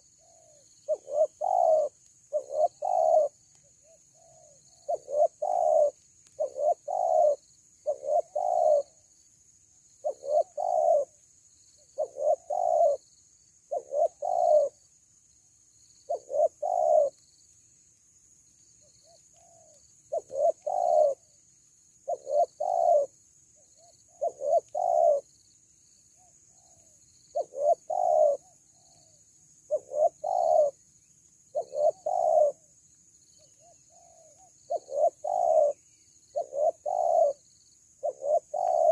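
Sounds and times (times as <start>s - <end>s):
dove cooing: 0.0s - 9.1s, 10.0s - 11.2s, 11.9s - 13.1s, 13.7s - 14.8s, 16.1s - 17.2s, 19.0s - 21.4s, 22.0s - 25.3s, 26.2s - 30.8s, 31.5s - 32.7s, 33.4s - 38.9s.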